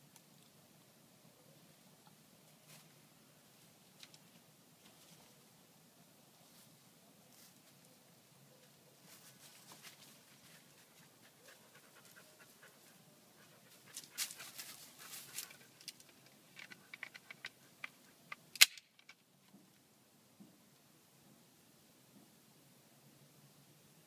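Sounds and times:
bamboo cracking: 0:15.4 - 0:19.2.

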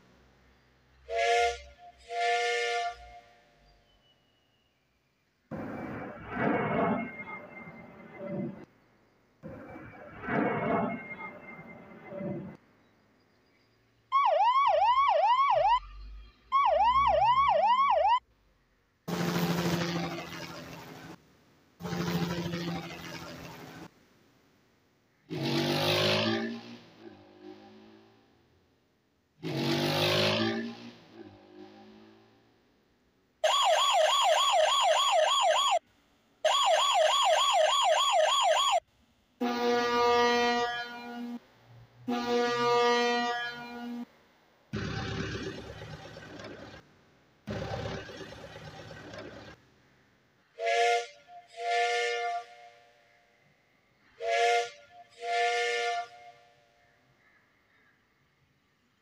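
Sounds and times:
ambulance siren whoops: 0:14.1 - 0:18.2, 0:33.4 - 0:35.8, 0:36.4 - 0:38.8.

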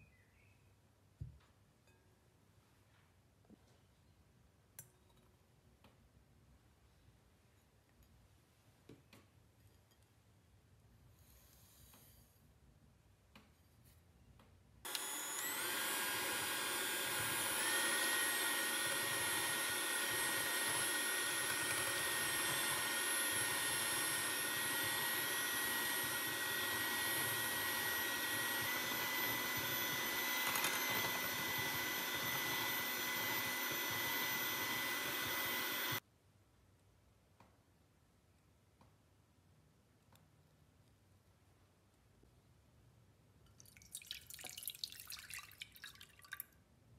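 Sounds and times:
hand mixer motor whining: 0:14.9 - 0:36.0.

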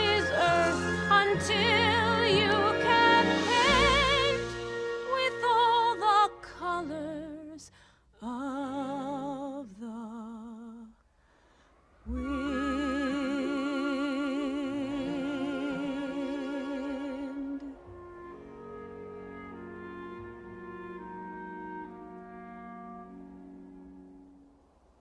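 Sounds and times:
soft backing music: 0:00.0 - 0:07.6, 0:12.1 - 0:25.0
woman singing with vibrato: 0:00.0 - 0:11.0, 0:12.1 - 0:18.0.

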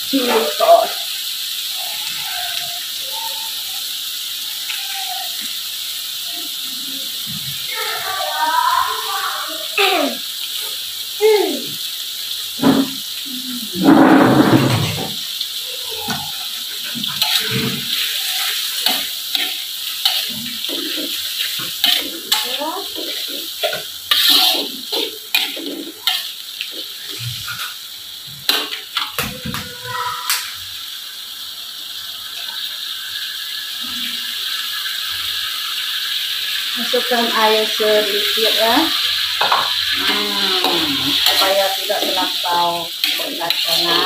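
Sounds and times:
sauce sizzling: 0:00.0 - 0:44.0
loud burst of noise: 0:13.7 - 0:15.2
metal spatula scraping a wok: 0:17.1 - 0:27.8, 0:41.0 - 0:44.0.

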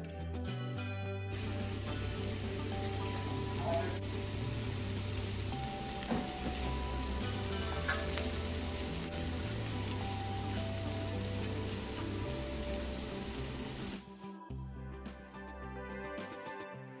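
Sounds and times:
background music: 0:00.0 - 0:17.0
vegetables sizzling in oil: 0:01.3 - 0:14.0
spatula scraping and tapping pan: 0:07.8 - 0:08.3.

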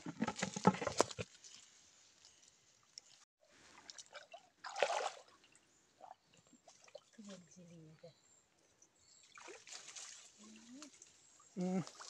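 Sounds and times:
water moving in bucket: 0:03.0 - 0:07.3
water splashing: 0:03.1 - 0:05.6, 0:09.3 - 0:12.0.

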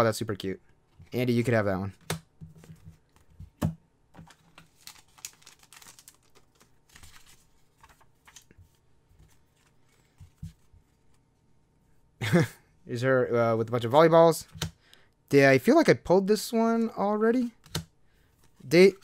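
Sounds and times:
paper rustling: 0:04.2 - 0:11.2.

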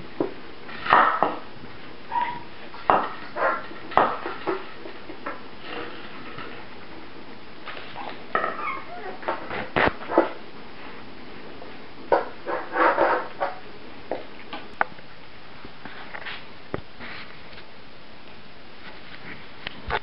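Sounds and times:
puppies yipping and whimpering: 0:02.1 - 0:02.5, 0:08.4 - 0:09.4.

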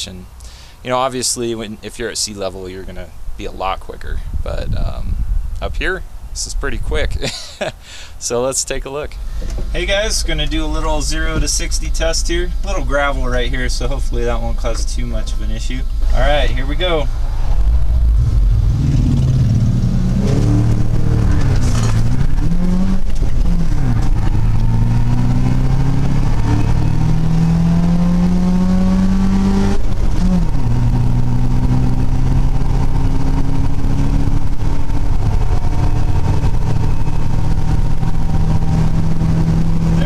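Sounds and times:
car engine accelerating: 0:09.1 - 0:40.0.

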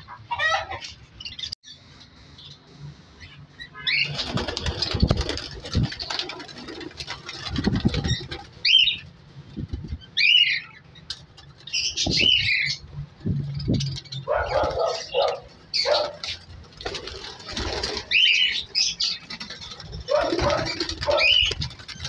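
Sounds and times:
wing flapping: 0:03.9 - 0:10.1, 0:13.2 - 0:22.0
budgerigars chirping: 0:20.1 - 0:22.0.

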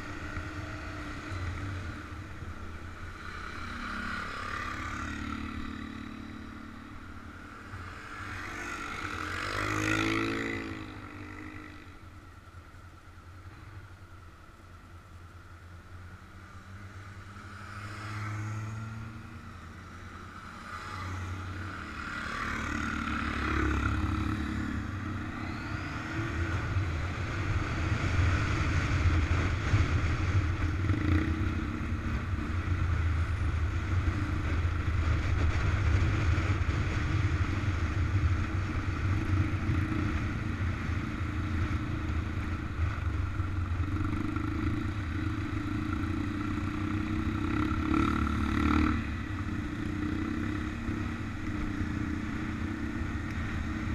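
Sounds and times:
motorcycle engine accelerating: 0:16.8 - 0:53.9
wind rumble on microphone: 0:24.6 - 0:53.9.

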